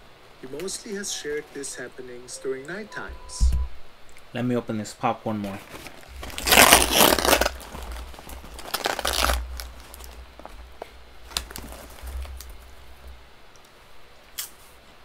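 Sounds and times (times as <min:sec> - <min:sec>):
popcorn bag crinkling: 0:05.5 - 0:13.0.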